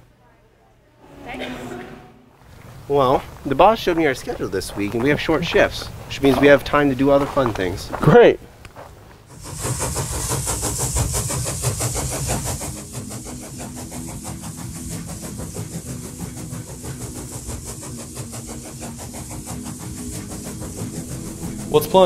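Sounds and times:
car engine idling: 9.3 - 22.0.

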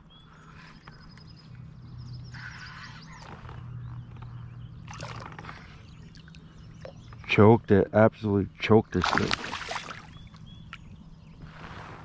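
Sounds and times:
steady low hum: 0.0 - 12.0
water splashing: 9.0 - 10.1.

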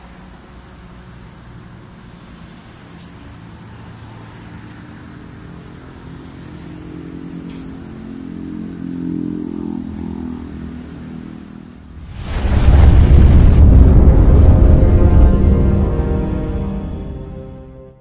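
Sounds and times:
rising whoosh sound effect: 11.9 - 17.6.

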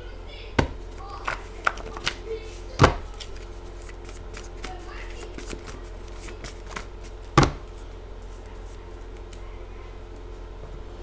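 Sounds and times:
steady low hum: 0.0 - 11.0
paper cards rustling: 0.8 - 9.4.

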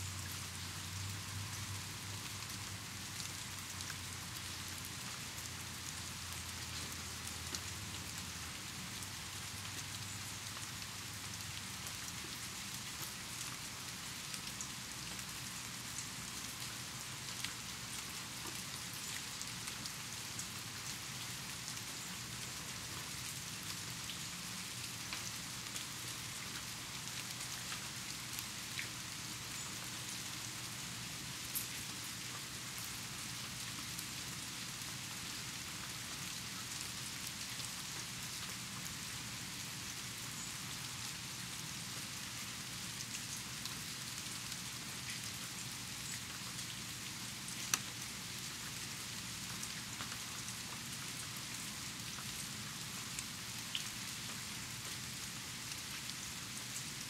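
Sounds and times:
steady rain hiss: 0.0 - 57.0
raindrops ticking: 47.7 - 48.0.

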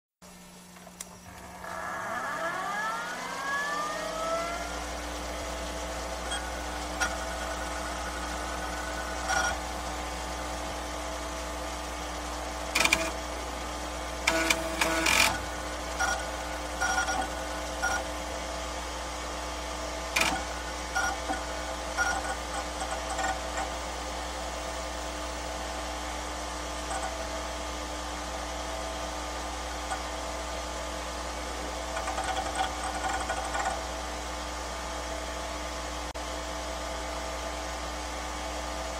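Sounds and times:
mechanical hum: 0.2 - 38.9.

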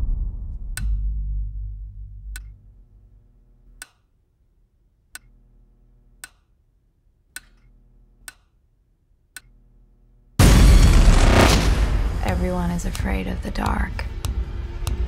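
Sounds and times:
light switch clicking: 6.2 - 6.4, 8.3 - 8.5.

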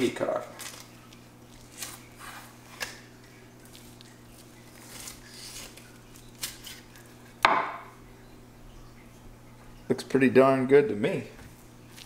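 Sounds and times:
knife scraping through fish: 4.6 - 7.1
knife knocking on wooden board: 7.4 - 7.9.

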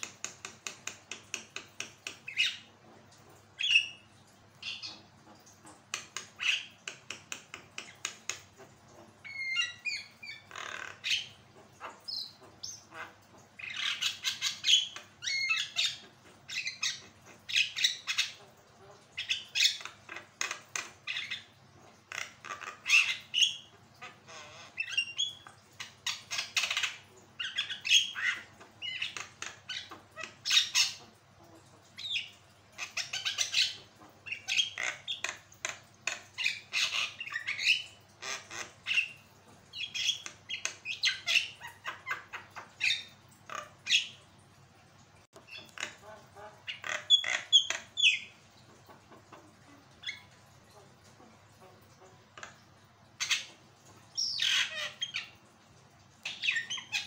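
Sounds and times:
bird chattering and squawking: 9.2 - 44.2, 45.4 - 51.0.

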